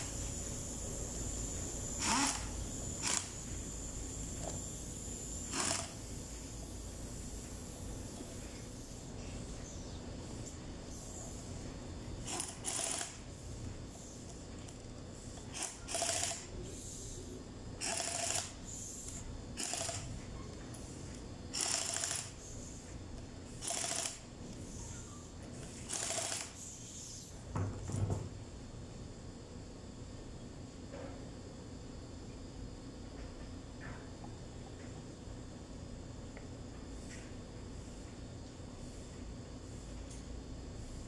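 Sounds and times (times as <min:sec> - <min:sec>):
pneumatic impact wrench bursts: 0:00.0 - 0:09.6, 0:12.2 - 0:27.4.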